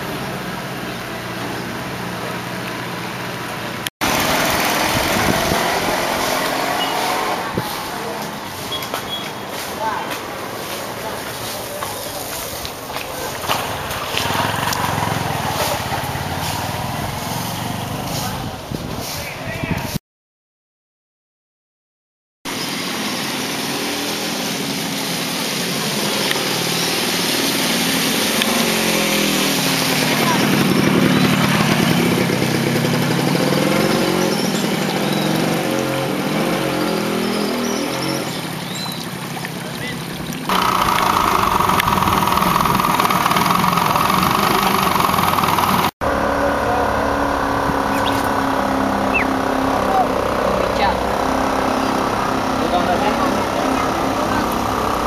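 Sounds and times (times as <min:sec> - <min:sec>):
small engine running: 0:04.0 - 0:08.2, 0:13.3 - 0:18.4, 0:25.6 - 0:36.8, 0:40.5 - 0:55.0
constant rushing noise: 0:39.8 - 0:45.9
engine idling with even hum: 0:40.5 - 0:55.0.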